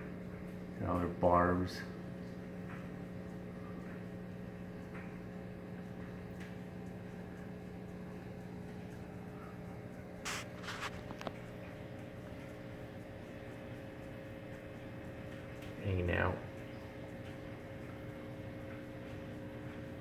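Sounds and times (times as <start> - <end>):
aquarium air pump hum: 0.0 - 20.0
short scratchy noises: 10.2 - 11.2.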